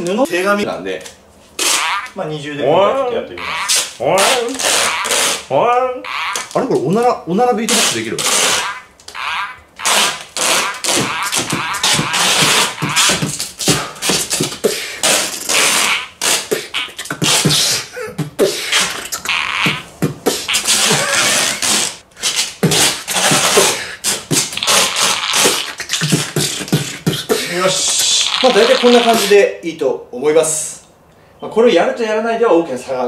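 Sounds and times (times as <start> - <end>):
beatboxing: 1.6 - 2.2, 3.4 - 5.5, 7.7 - 29.4.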